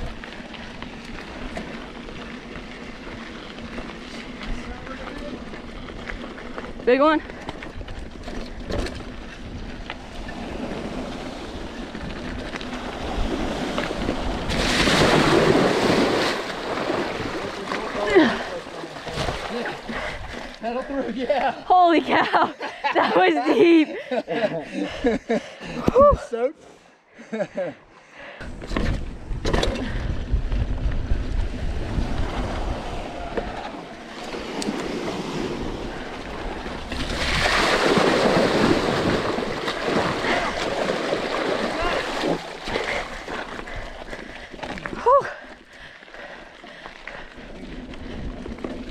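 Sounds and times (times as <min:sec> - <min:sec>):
water splashing around wheels: 0:00.0 - 0:20.8, 0:30.6 - 0:48.9
bike tyres rolling on dirt: 0:00.0 - 0:21.6, 0:28.4 - 0:48.9
water splashing: 0:12.8 - 0:20.6, 0:34.4 - 0:45.1
wind on microphone: 0:28.5 - 0:42.4.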